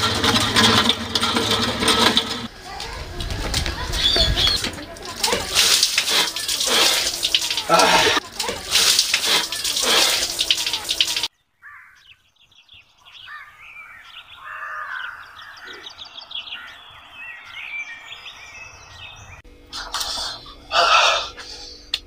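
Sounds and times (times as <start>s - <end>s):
small birds chirping: 2.4s - 19.5s.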